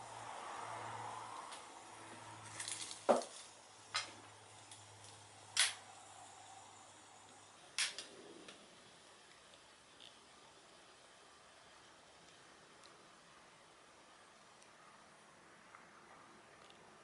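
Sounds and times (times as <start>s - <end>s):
sharp clicks of lighter and tray: 5.6s - 5.8s, 7.8s - 8.1s.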